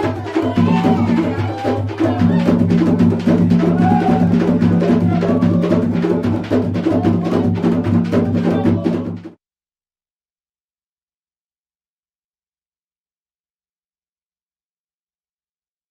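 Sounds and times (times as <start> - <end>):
drums in fast rhythm: 0.0 - 9.4.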